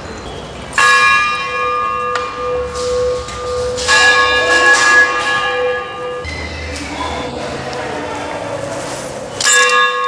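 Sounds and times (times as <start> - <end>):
temple bell ringing: 0.8 - 7.5, 9.4 - 10.0.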